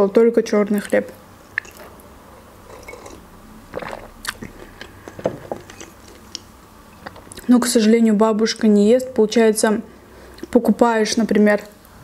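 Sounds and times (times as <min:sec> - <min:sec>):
person chewing bread: 0:02.8 - 0:05.0.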